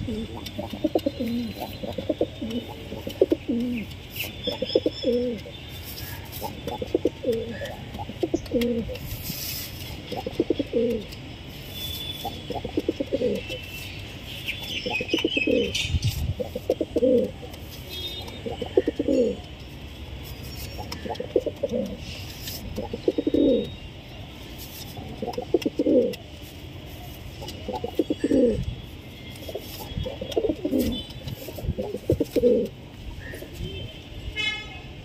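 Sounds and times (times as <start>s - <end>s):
pigeon cooing: 0.0s - 5.4s, 6.4s - 9.0s, 10.1s - 11.1s, 12.2s - 13.6s, 16.4s - 17.5s, 18.4s - 19.5s, 20.8s - 23.7s, 25.0s - 26.2s, 27.4s - 28.6s, 29.5s - 33.4s.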